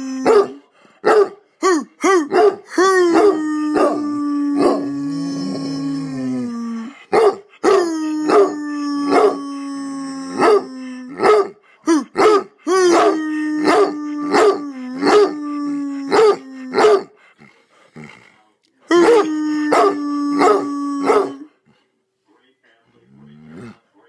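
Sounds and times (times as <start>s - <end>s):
man howling: 0.0s - 0.6s, 1.6s - 7.0s, 7.6s - 11.3s, 11.9s - 17.1s, 18.9s - 21.5s
dog barking: 0.2s - 1.4s, 2.3s - 2.7s, 7.1s - 8.5s, 9.1s - 9.3s, 10.4s - 11.6s, 12.2s - 13.1s, 16.1s - 17.1s, 19.0s - 21.5s.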